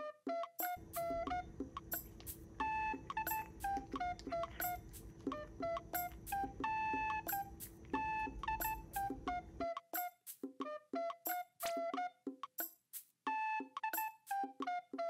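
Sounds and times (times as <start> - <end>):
low steady hum: 0.8 - 9.6.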